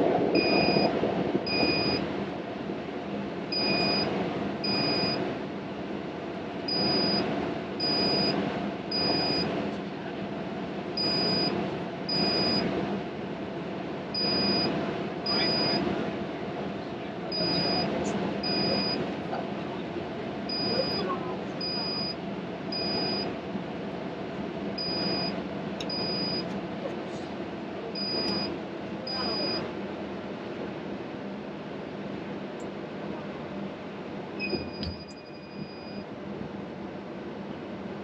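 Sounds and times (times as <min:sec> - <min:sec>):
steady background hum: 0:00.0 - 0:38.0
short electronic beeps: 0:00.4 - 0:00.9, 0:01.5 - 0:02.0, 0:03.5 - 0:05.2, 0:06.7 - 0:07.2, 0:07.8 - 0:09.5, 0:11.0 - 0:11.5, 0:12.1 - 0:12.6, 0:14.2 - 0:15.8, 0:17.3 - 0:19.0, 0:20.5 - 0:21.0, 0:21.6 - 0:23.3, 0:24.8 - 0:26.5, 0:28.0 - 0:28.5, 0:29.1 - 0:29.6, 0:34.4 - 0:36.0.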